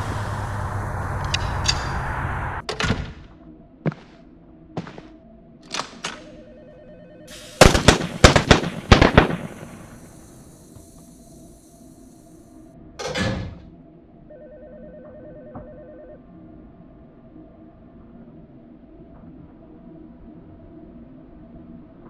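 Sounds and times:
low rumble: 0.0 - 3.8
rapid gunshots: 7.3 - 10.1.

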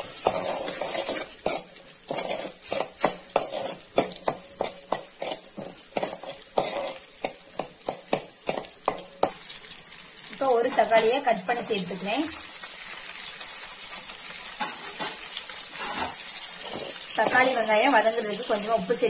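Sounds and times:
steel spatula scraping a pan: 0.0 - 9.7, 14.5 - 19.0
shallots sizzling in hot oil: 0.0 - 19.0.

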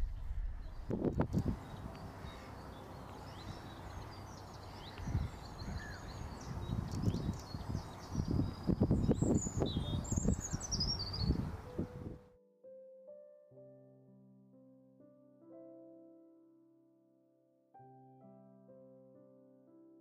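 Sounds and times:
low rumbles: 0.0 - 1.6
small birds singing: 0.5 - 11.9.

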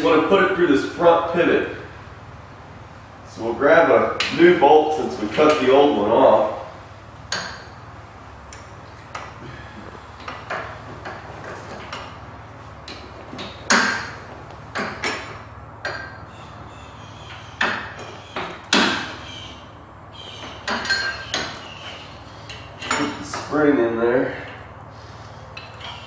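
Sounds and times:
steady low hum: 0.0 - 26.0
metal clinks and knocks: 10.2 - 16.3, 20.4 - 23.5.

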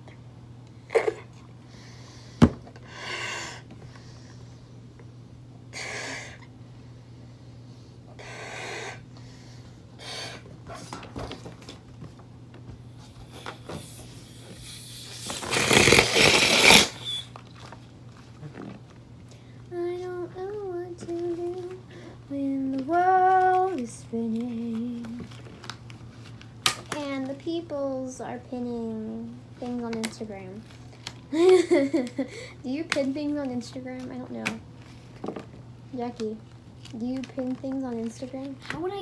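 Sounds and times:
air rushing out of balloon: 13.2 - 17.3
breathy puffs into balloon: 13.2 - 17.3.

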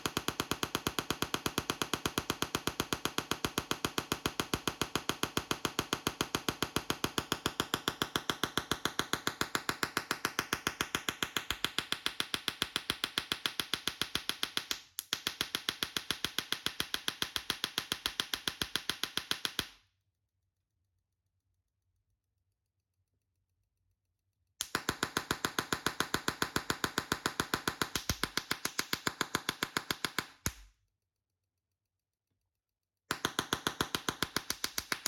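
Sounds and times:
tesla coil sparks snapping: 24.6 - 30.6, 33.1 - 35.0.

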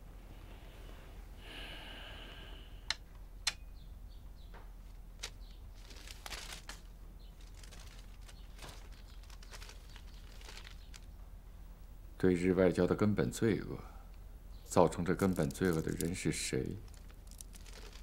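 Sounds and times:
faint low hum: 0.0 - 18.0
paper rustling: 5.2 - 11.1, 15.2 - 18.0.

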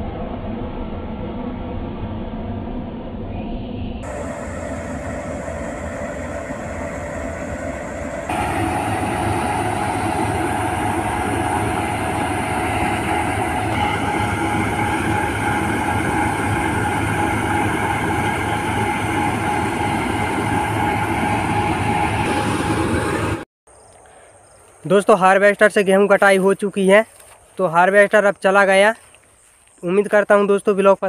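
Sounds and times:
combine harvester droning: 0.0 - 23.4.

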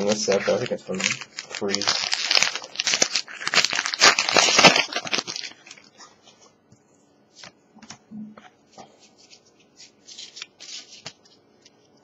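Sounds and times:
foil wrapper crinkling and tearing: 0.0 - 6.0, 9.8 - 11.8.

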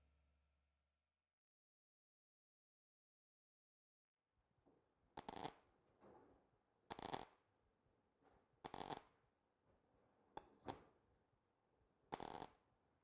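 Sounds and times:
welding arc bursts: 5.2 - 5.6, 6.9 - 7.3, 12.1 - 12.5.

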